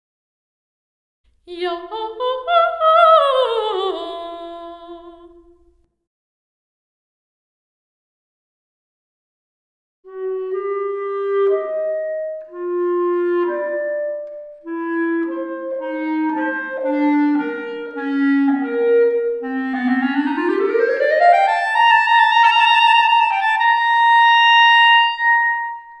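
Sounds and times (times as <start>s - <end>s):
solo clarinet with reverb: 10.1s - 26.0s.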